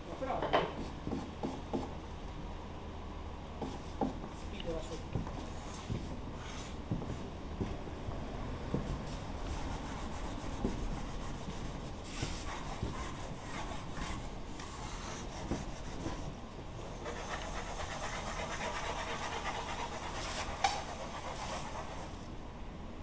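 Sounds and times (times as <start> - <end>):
sandpaper rubbing on wood: 9.6 - 16.3, 17.0 - 22.2.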